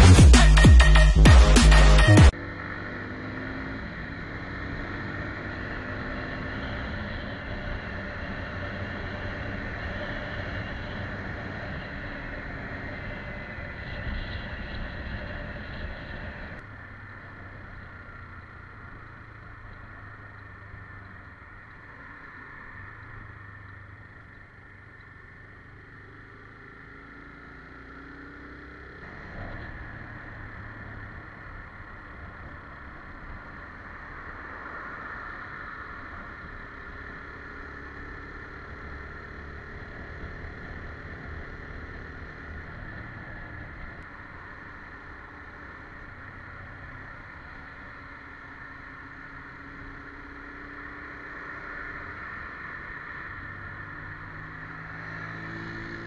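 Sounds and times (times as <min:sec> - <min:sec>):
motorcycle engine running: 0:00.0 - 0:34.4.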